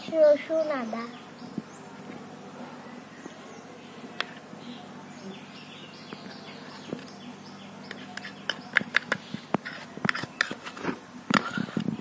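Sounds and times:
spoon scraping steel bowl: 7.9s - 11.9s.

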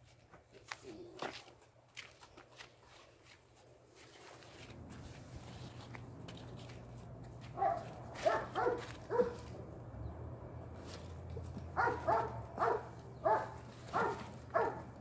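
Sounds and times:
dog barking: 7.6s - 9.5s, 11.8s - 15.0s.

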